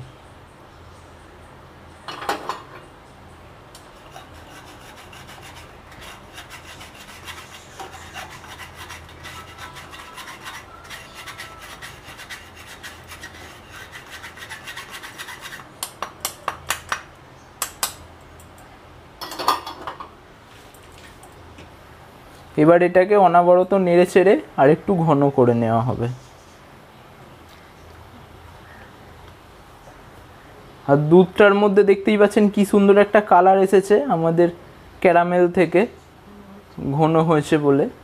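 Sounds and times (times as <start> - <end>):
spoon scraping wire mesh strainer: 4.0 - 15.7.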